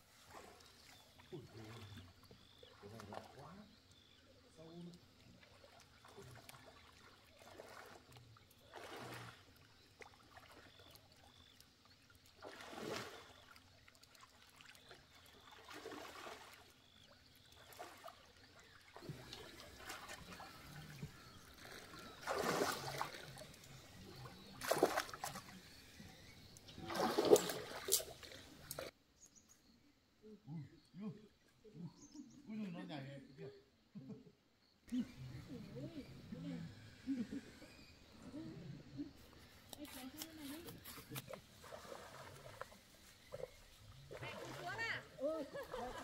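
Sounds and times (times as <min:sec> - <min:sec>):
water splashing and trickling: 0:00.0 - 0:29.0, 0:39.3 - 0:46.0.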